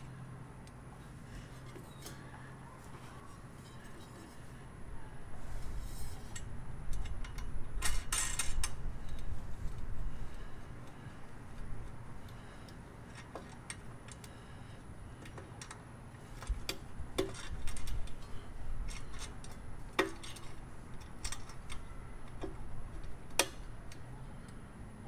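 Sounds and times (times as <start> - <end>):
metallic clinks of bolts and nuts: 6.2 - 9.2, 16.4 - 23.7.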